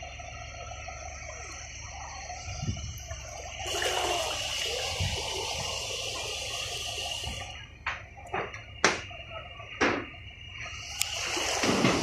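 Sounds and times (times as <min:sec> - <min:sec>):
floodwater rushing: 0:02.9 - 0:07.6, 0:10.6 - 0:12.0
water splashes: 0:03.0 - 0:07.6, 0:10.5 - 0:12.0.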